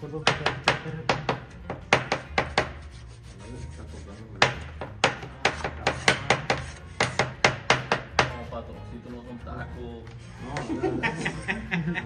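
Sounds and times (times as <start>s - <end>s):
knives chopping on cutting boards: 0.2s - 2.9s, 4.4s - 8.4s.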